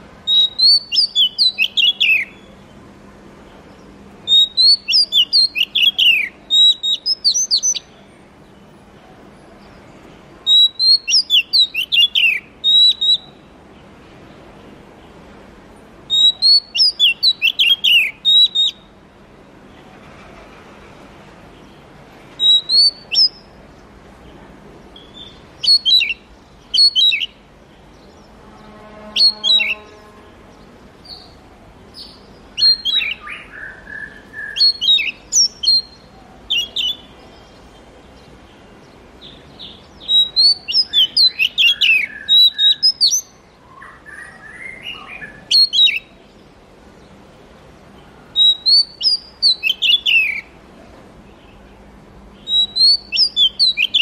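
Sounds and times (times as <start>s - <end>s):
bird singing whistled notes: 0.2s - 2.6s, 3.7s - 8.0s, 10.4s - 13.5s, 16.1s - 19.0s, 22.4s - 23.6s, 25.0s - 46.4s, 48.4s - 50.5s, 52.4s - 54.0s.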